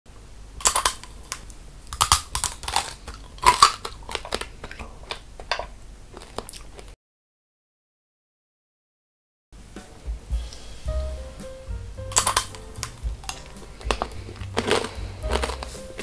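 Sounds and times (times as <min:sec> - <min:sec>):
candied fruit crunching when bitten: 0:00.6 - 0:06.9, 0:12.1 - 0:12.6, 0:13.2 - 0:16.0.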